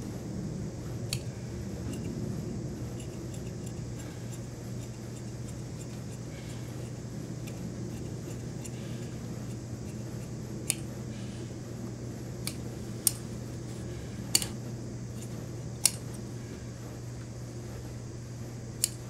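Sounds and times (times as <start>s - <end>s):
low hum: 0.0s - 19.0s
shears snipping cloth: 1.1s - 2.1s, 2.8s - 11.1s, 12.4s - 16.3s, 18.7s - 19.0s.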